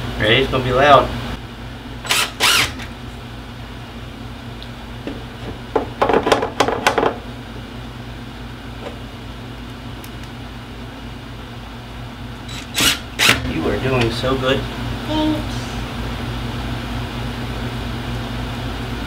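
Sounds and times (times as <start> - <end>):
steady low hum: 0.0 - 19.0
cordless drill driving a screw: 2.1 - 2.9, 12.5 - 13.4.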